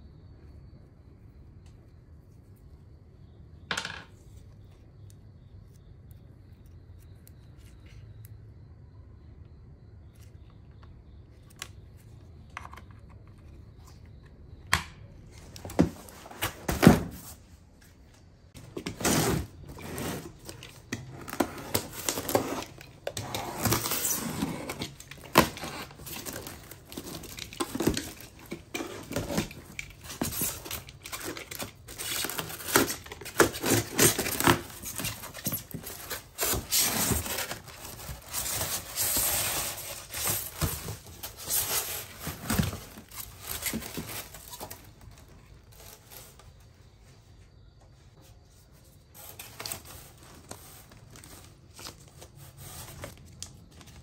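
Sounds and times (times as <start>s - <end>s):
cardboard and foam rustling: 15.4s - 47.5s, 48.1s - 54.0s
packing tape tearing: 18.9s - 44.8s.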